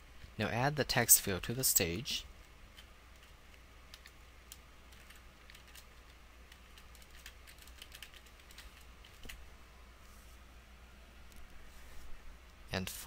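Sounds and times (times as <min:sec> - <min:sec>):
steady low hum: 0:00.0 - 0:13.0
computer keyboard typing: 0:02.7 - 0:09.4.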